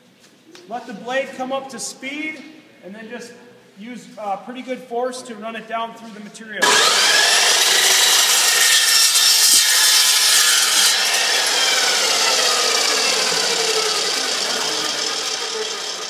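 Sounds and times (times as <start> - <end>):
chop saw cutting metal tubing: 6.6 - 16.0
saw blade spinning down whine: 6.6 - 16.0.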